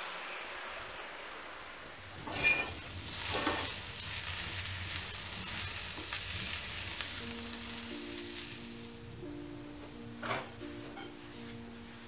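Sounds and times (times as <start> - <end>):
cabbage sizzling in a pan: 0.0 - 9.1.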